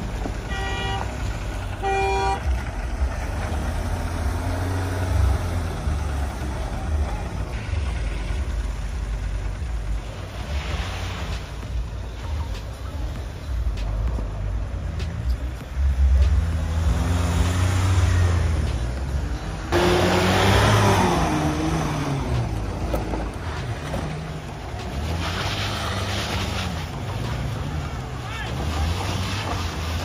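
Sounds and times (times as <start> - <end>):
off-road engines revving: 0.0 - 30.0.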